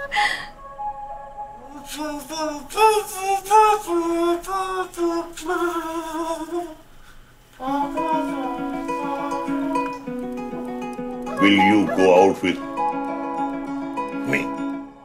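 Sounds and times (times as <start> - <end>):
man humming through cupped hands: 7.6 - 14.7
plucked guitar chords: 7.7 - 15.0.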